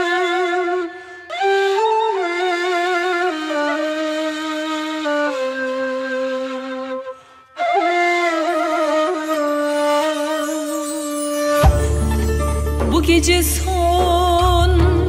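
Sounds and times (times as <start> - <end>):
solo woodwind melody: 0.0 - 12.8.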